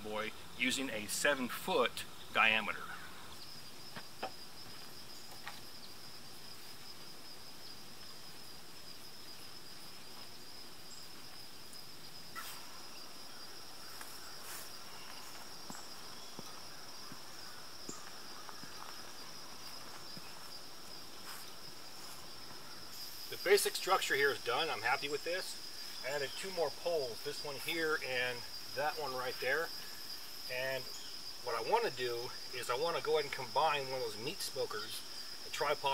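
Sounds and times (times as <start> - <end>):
insects trilling: 0.0 - 35.9.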